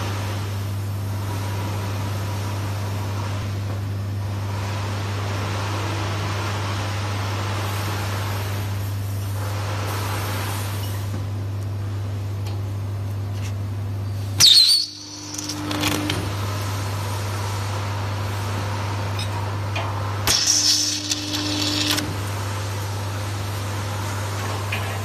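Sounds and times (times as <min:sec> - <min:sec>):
steady low hum: 0:10.8 - 0:25.0
stud welding arc burst: 0:14.4 - 0:16.3, 0:20.1 - 0:23.1.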